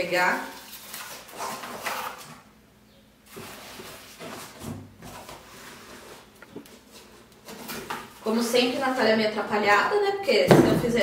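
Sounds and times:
cardboard scraping and rustling: 0.5s - 2.4s, 3.3s - 8.3s.

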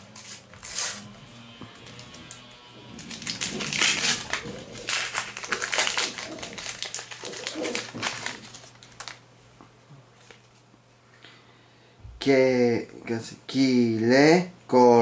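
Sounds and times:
plastic wrapper tearing and crinkling: 0.0s - 1.1s, 2.0s - 9.2s.

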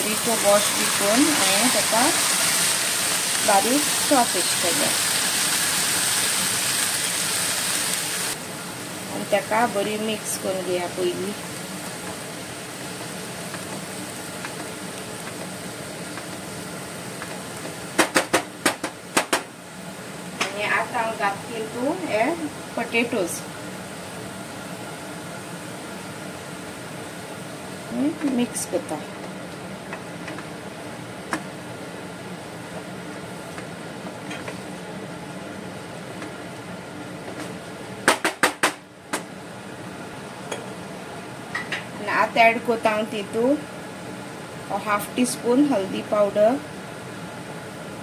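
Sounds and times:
leaves sizzling in a pan: 0.0s - 31.6s
steady background hum: 0.0s - 48.0s.

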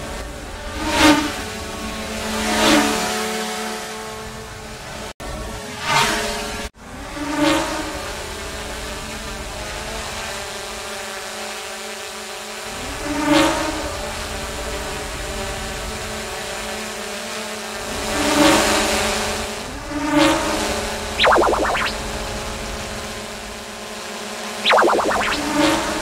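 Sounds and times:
drone propellers buzzing: 21.2s - 22.0s, 24.7s - 25.6s.

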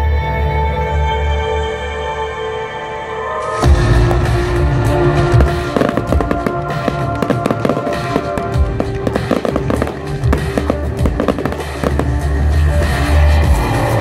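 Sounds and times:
loud music: 2.7s - 14.0s
fireworks bangs and crackles: 3.8s - 13.0s.

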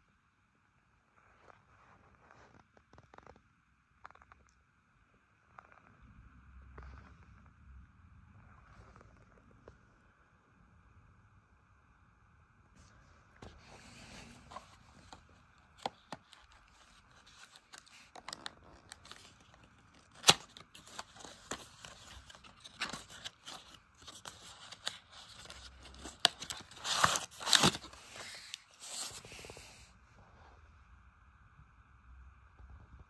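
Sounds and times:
plastic pouch crinkling: 14.0s - 29.3s.

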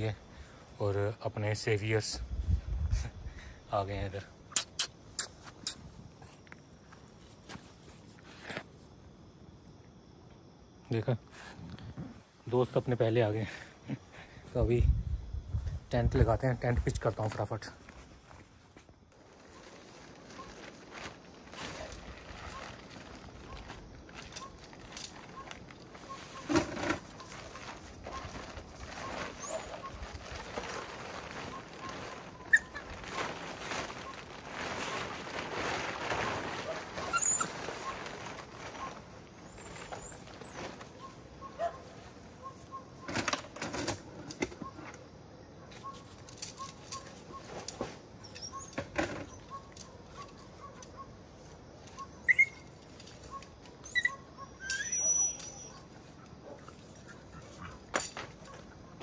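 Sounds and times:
tent fabric rustling and flapping: 17.9s - 43.9s.

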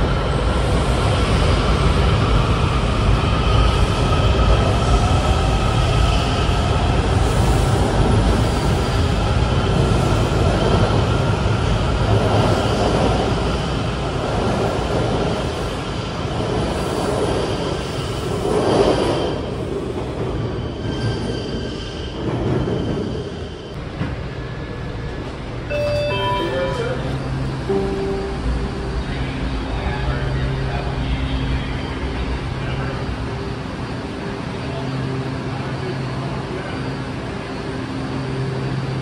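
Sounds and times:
train wheels rumbling on rail: 0.0s - 25.8s
high whine of train: 0.0s - 39.0s.

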